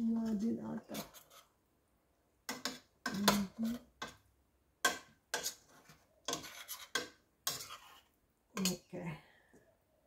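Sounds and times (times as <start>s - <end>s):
spoon scraping a metal pot: 0.0s - 1.5s, 2.5s - 8.9s.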